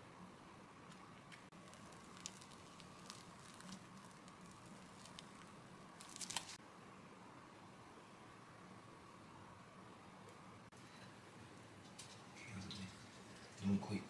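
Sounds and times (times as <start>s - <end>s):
cream squishing from piping bag: 1.5s - 6.6s.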